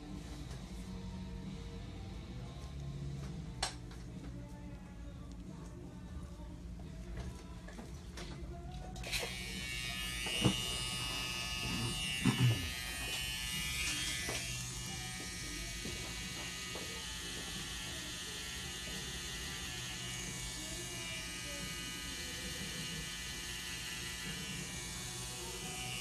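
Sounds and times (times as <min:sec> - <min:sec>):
tattoo machine buzzing: 0:09.0 - 0:26.0.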